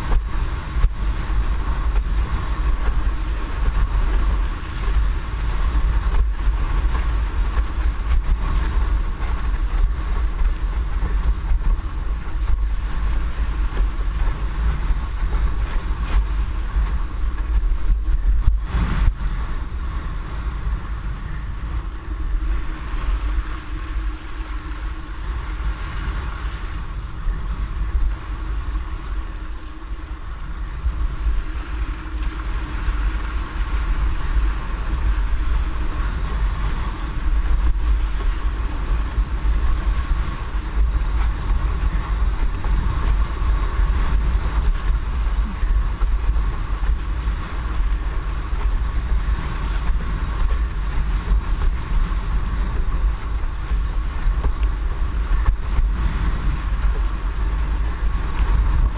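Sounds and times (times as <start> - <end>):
water rushing and hissing: 0.0 - 58.9
wind buffeting microphone: 0.0 - 58.9.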